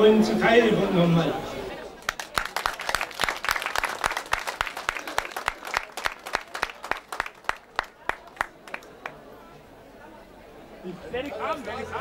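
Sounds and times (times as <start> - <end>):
small crowd applauding: 2.0 - 9.2.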